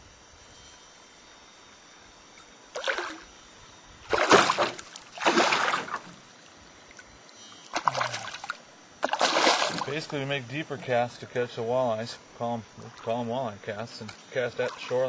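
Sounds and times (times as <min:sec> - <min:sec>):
fish splashing in water: 0:02.8 - 0:03.4, 0:04.1 - 0:06.2, 0:07.7 - 0:10.2.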